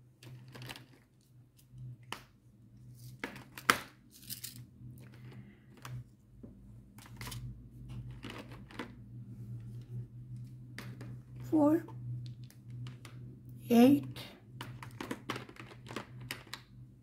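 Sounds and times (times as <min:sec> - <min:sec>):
plastic pots clicking and knocking: 0:14.5 - 0:16.8.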